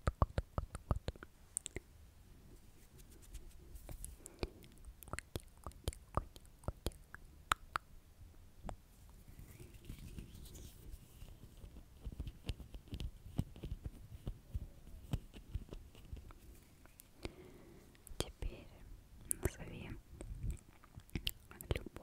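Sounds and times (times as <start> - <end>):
fingertips rubbing microphone grille: 2.7 - 4.2, 9.1 - 16.4.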